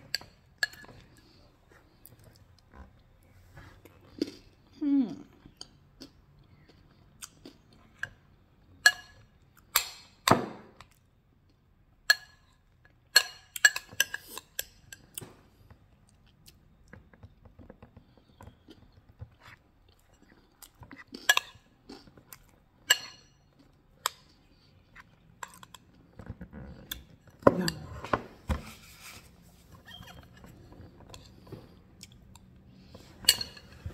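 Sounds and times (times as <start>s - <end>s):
person chewing and smacking: 3.8s - 4.7s, 5.4s - 10.1s, 12.9s - 27.4s, 29.9s - 33.1s.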